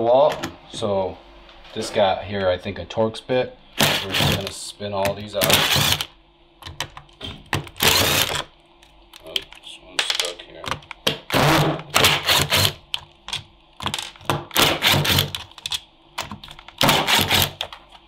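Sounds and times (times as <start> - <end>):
power driver spinning screws: 5.4 - 6.1, 7.8 - 8.4, 12.0 - 12.7, 16.8 - 17.6.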